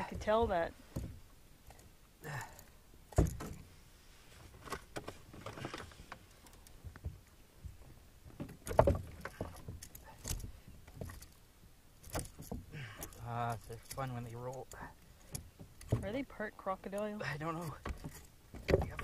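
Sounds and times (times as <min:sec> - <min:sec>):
fishing tackle knocking against canoe: 0:06.8 - 0:11.2, 0:17.8 - 0:19.0.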